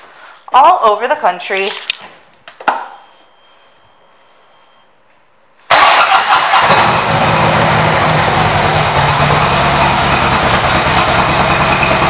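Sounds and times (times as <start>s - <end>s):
motorcycle engine starting and idling: 5.7s - 12.0s.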